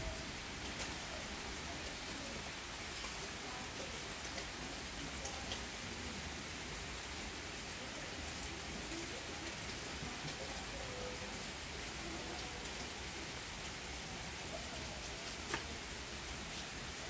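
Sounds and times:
rain on foliage and paving: 0.0 - 17.0.

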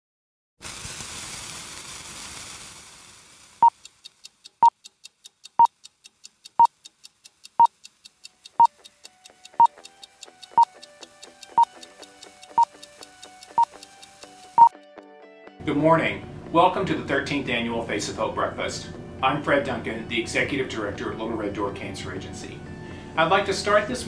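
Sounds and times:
hiss: 0.6 - 4.2
faint ticking: 3.6 - 14.7
faint steady musical tones: 3.7 - 14.8, 15.6 - 24.0.

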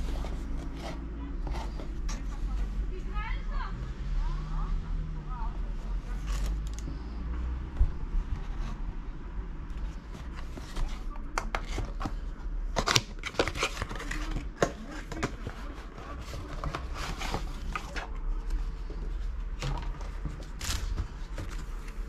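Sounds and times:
cardboard box handling rumble: 0.0 - 2.9, 7.6 - 9.0, 9.8 - 22.0
cardboard crinkly rustles: 9.9 - 22.0.

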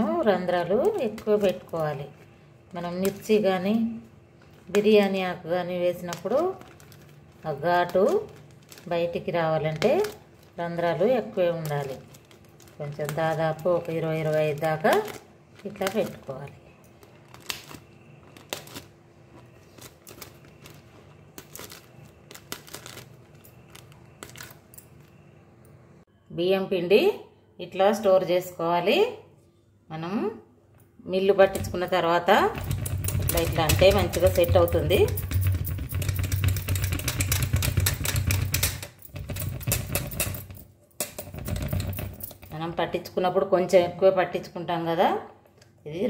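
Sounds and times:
plastic bag crinkling: 5.8 - 25.2.

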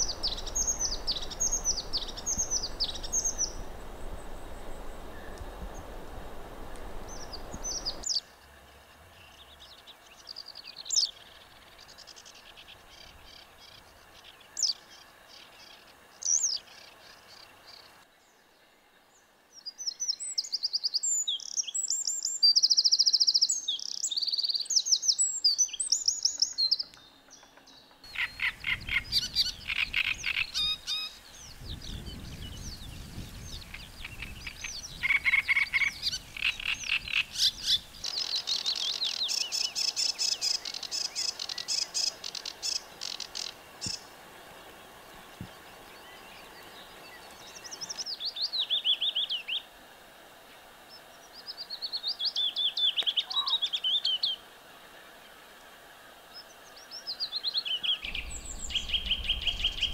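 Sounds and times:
songbird singing high clear notes: 0.0 - 6.0, 6.9 - 8.2, 28.1 - 44.1, 51.5 - 54.4, 57.1 - 59.9
sedge warbler singing fast notes: 0.0 - 17.9, 19.6 - 44.2, 56.4 - 59.9
reed warbler singing repeated phrases: 0.0 - 18.0, 19.5 - 44.2, 44.9 - 49.7, 50.9 - 54.4, 56.3 - 59.9
wagtail calls: 0.0 - 18.0, 25.9 - 49.7, 51.0 - 54.4, 56.4 - 59.9.

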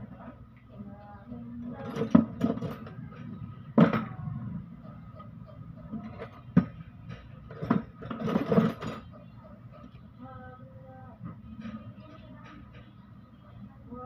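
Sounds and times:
metal tools knocking and clanking: 1.6 - 4.3, 5.2 - 10.0, 11.2 - 13.1.

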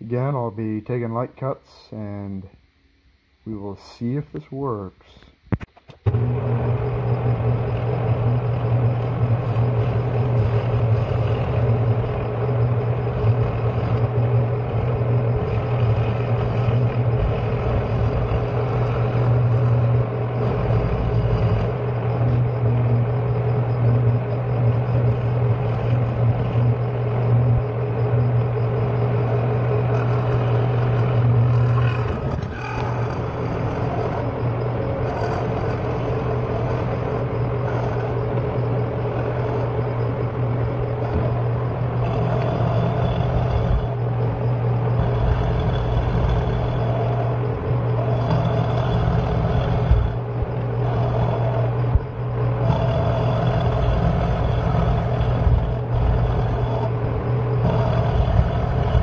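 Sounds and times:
milling machine motor hum: 5.5 - 59.0
end mill grinding steel: 6.1 - 59.0.

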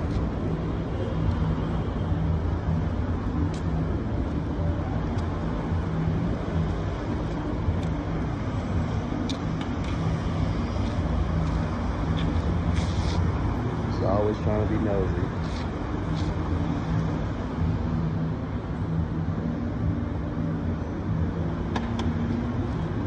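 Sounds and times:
road traffic rumble: 0.0 - 23.0.

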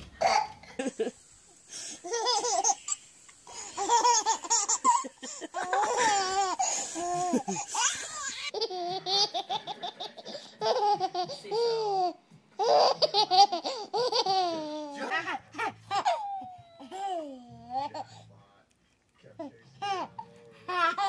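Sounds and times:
baby giggling: 2.0 - 18.1.

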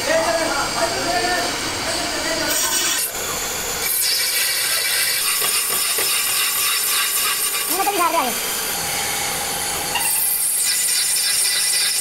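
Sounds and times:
metal lathe scraping hiss: 0.4 - 12.0.

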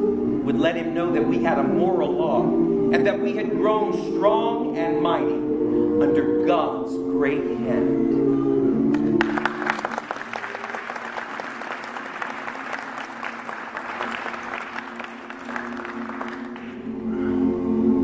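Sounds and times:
a cappella choir singing: 0.0 - 9.9, 16.3 - 18.0
audience applauding: 9.0 - 16.9.

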